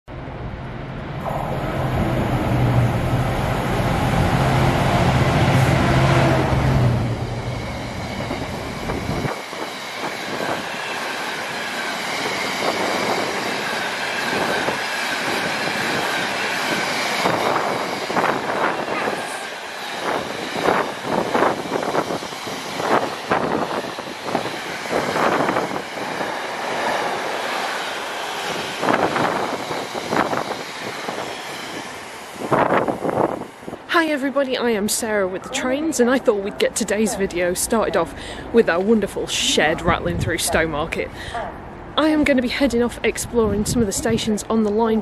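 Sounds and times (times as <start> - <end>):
diesel locomotive passing: 0.1 - 45.0.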